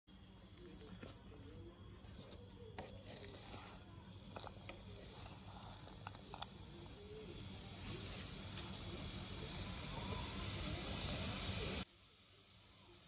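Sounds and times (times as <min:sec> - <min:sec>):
spatula scraping in a wok: 0:02.0 - 0:11.6.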